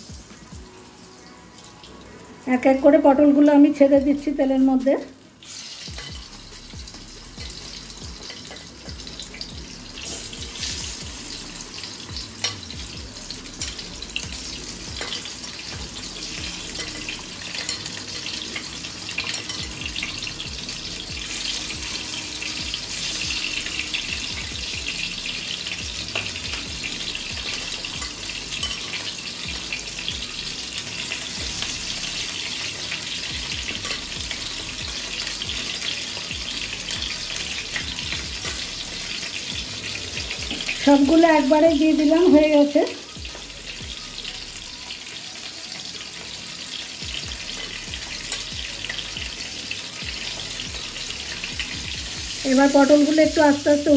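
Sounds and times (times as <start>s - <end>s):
vegetables sizzling in oil: 0.0s - 53.9s.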